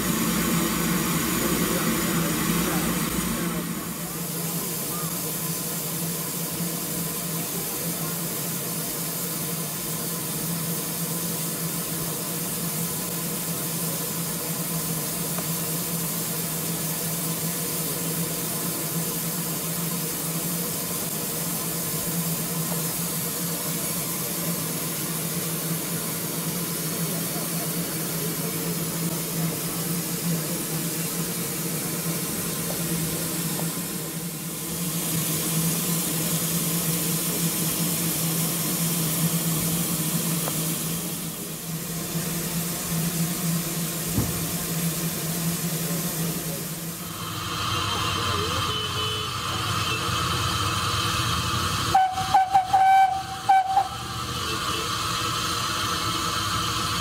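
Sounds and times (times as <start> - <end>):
steady low hum: 0.0 - 6.8
escaping steam hissing: 0.0 - 57.0.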